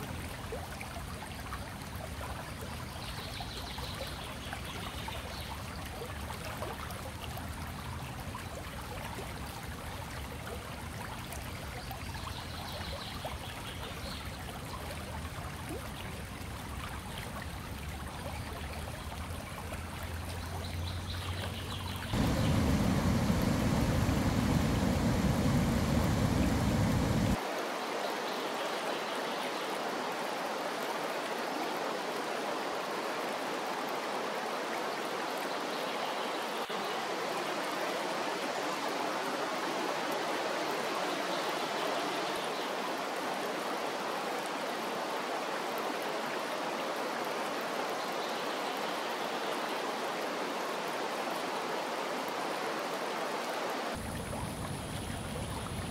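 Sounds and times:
river flowing over rapids: 22.1s - 29.0s, 36.7s - 55.9s
low rumble: 22.2s - 27.4s.

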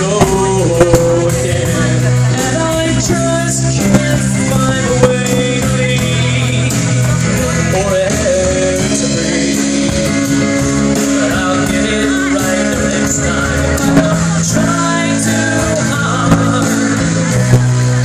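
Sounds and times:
drum kit: 0.0s - 18.0s
electric bass: 0.0s - 18.0s
man singing: 0.0s - 18.0s
strummed acoustic guitar: 0.0s - 18.0s.

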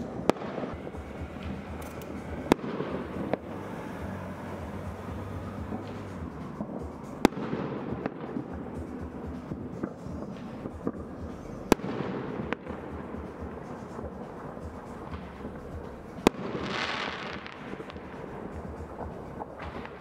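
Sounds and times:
fireworks pops: 0.0s - 3.4s
fireworks bangs: 0.0s - 20.0s
fireworks crackling: 0.0s - 20.0s.

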